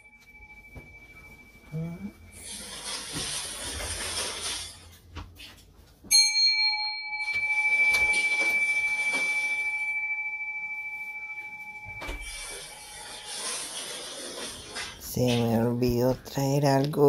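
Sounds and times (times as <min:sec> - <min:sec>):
bell ringing: 0:00.0 - 0:02.7, 0:06.1 - 0:13.8.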